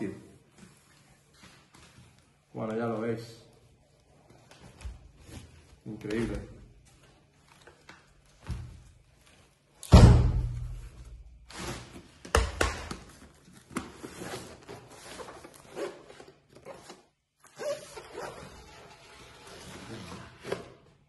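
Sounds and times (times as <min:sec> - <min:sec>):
cardboard rustling and scraping: 0:11.4 - 0:12.3, 0:13.1 - 0:17.1.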